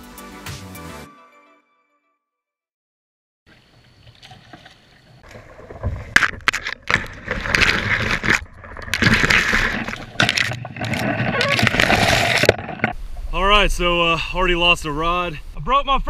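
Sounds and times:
branches scraping and snapping on kayak: 3.5s - 13.0s.

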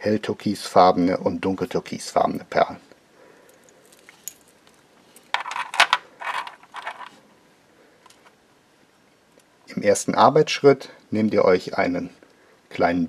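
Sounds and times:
bracelet beads clinking and rattling: 3.5s - 7.2s.

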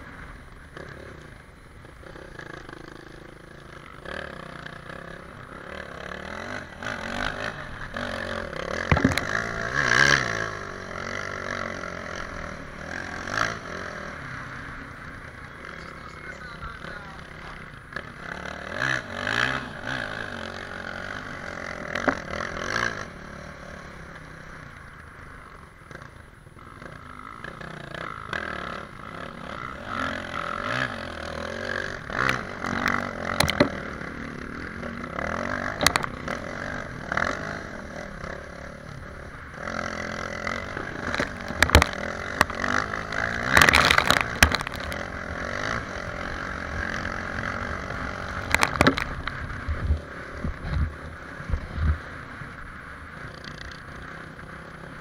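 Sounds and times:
motorcycle engine running hard: 0.0s - 55.0s
sharp knocks and clatters: 8.8s - 9.5s, 32.2s - 33.8s, 35.8s - 36.1s, 41.0s - 42.8s, 43.4s - 45.0s, 48.4s - 49.3s
skis and tyres scraping on icy snow: 40.6s - 55.0s.

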